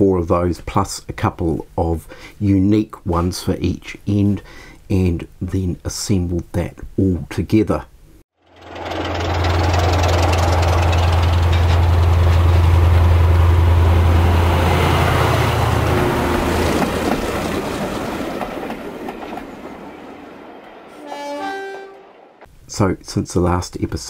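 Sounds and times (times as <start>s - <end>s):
diesel train passing: 8.4s - 22.5s.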